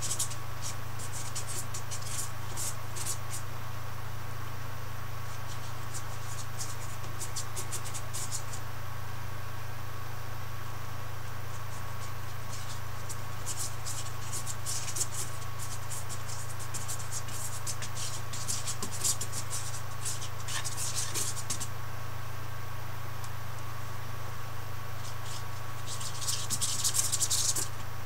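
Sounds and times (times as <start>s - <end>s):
paintbrush scrubbing on canvas: 0.0s - 3.4s, 11.6s - 21.7s, 25.0s - 27.7s
steady low hum: 0.0s - 28.0s.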